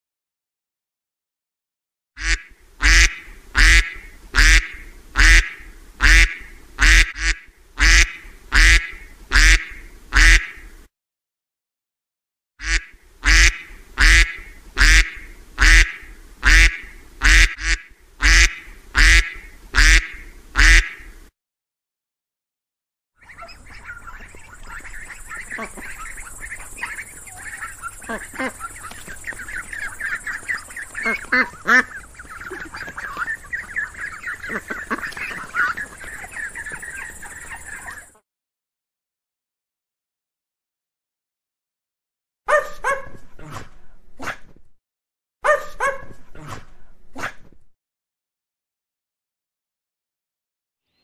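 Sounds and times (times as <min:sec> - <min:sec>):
duck quacking: 0:02.2 - 0:10.7, 0:12.6 - 0:21.2, 0:23.2 - 0:38.2.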